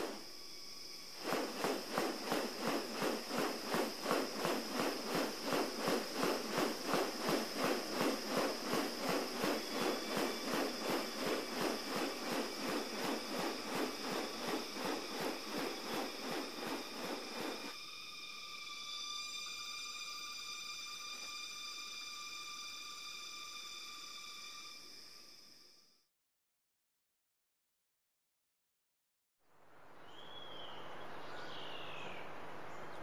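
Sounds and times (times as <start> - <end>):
bird wings swishing: 0.0 - 0.3, 1.1 - 17.8.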